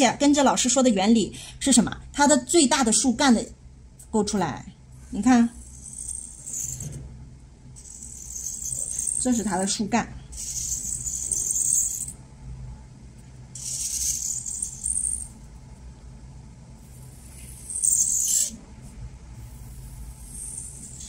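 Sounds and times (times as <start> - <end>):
marker hissing on paper: 10.3 - 12.1, 13.6 - 15.3, 16.8 - 21.0.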